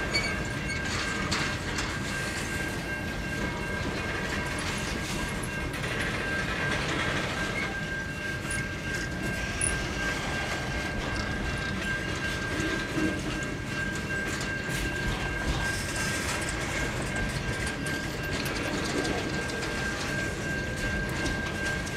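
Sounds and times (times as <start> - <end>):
steel wheels rolling on rail: 0.0 - 21.9.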